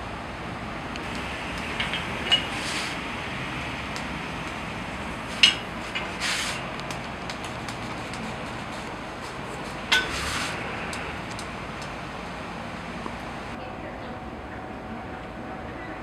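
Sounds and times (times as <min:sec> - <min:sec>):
steady background noise: 0:00.0 - 0:16.0
short bursts of hiss: 0:02.4 - 0:03.2, 0:06.1 - 0:06.7, 0:10.0 - 0:10.7.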